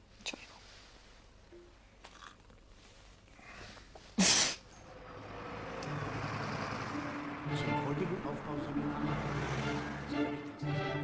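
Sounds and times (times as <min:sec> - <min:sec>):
soft hiss: 0:00.0 - 0:02.0.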